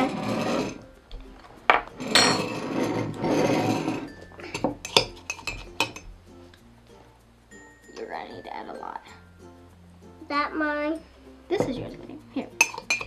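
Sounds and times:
spoon clinking against mug: 3.7 - 6.1, 12.5 - 13.0.

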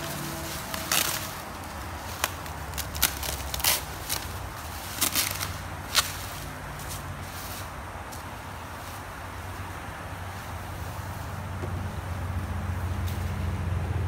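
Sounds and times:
bubble wrap rustling and crackling: 0.0 - 7.7.

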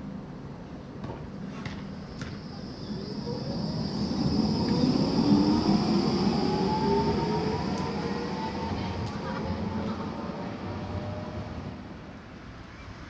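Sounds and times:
wheels rumbling on rails: 1.4 - 12.8
tram motor whine rising: 1.8 - 12.1.

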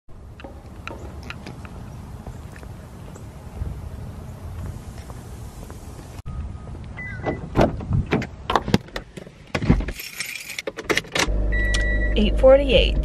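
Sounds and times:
clicks and knocks of car door: 7.2 - 9.9
car keys jangling: 9.9 - 11.2.

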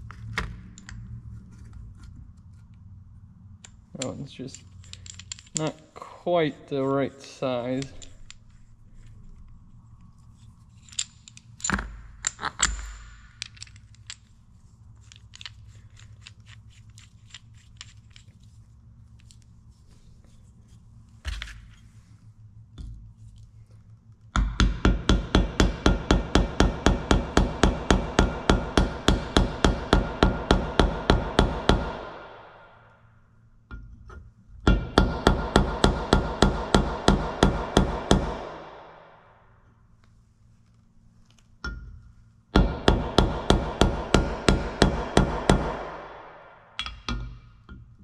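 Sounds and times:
hammer striking metal: 24.4 - 32.8, 34.7 - 39.3, 42.6 - 47.4.

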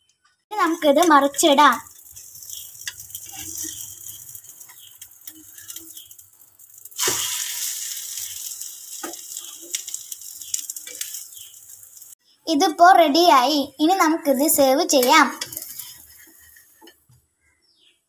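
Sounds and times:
omelette sizzling in oil: 0.5 - 12.2, 14.4 - 17.1.

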